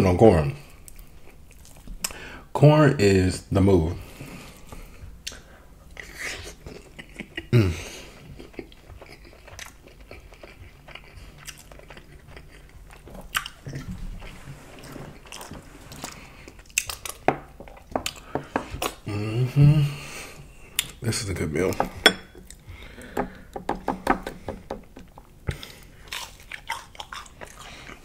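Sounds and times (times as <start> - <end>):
wet chewing mouth clicks: 8.2 - 13.9, 25.5 - 28.0.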